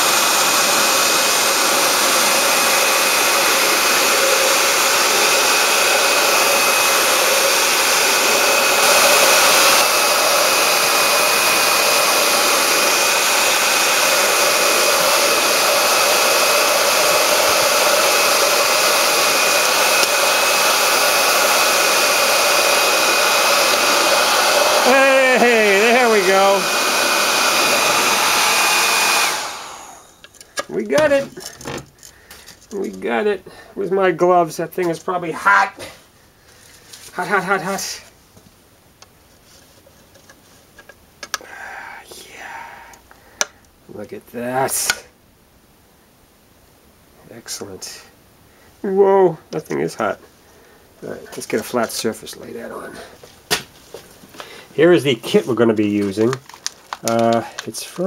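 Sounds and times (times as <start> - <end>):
hair dryer blowing: 0.0 - 31.3, 41.4 - 43.1, 56.1 - 57.7.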